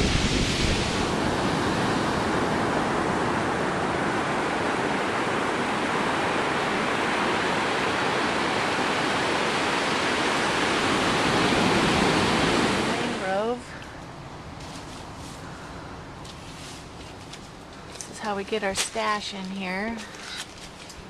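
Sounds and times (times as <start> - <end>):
ocean surf breaking on beach: 0.0 - 14.3.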